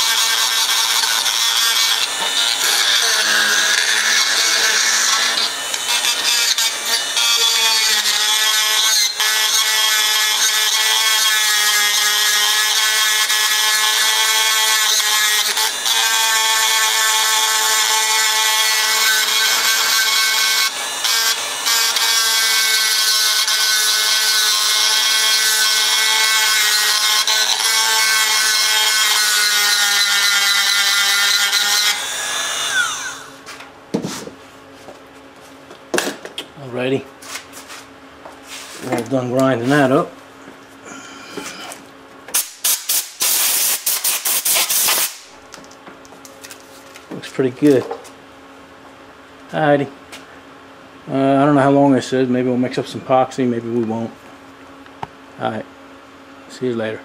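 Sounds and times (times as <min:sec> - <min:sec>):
rotary tool grinding metal: 0:00.0 - 0:33.4.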